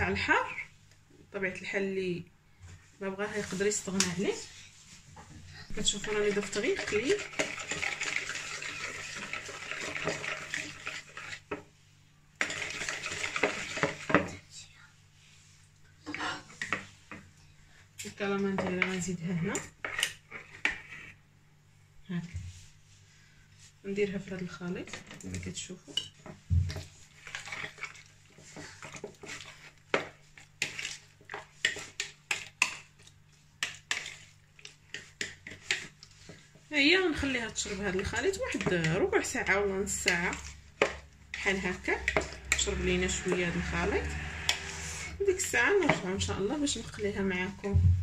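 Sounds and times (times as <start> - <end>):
whisk beating batter in a bowl: 5.7 - 11.7, 12.4 - 14.4, 24.2 - 47.5.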